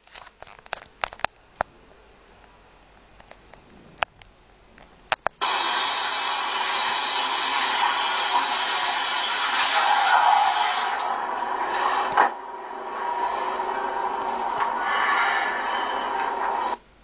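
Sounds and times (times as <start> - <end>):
loud steady rushing noise: 5.4 - 16.8.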